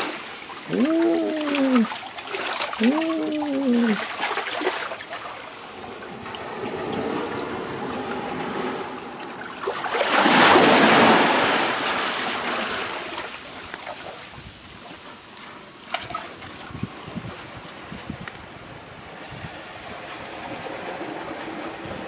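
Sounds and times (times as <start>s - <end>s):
wave surging and foaming: 0.0s - 13.6s
water draining over sand: 0.0s - 18.5s.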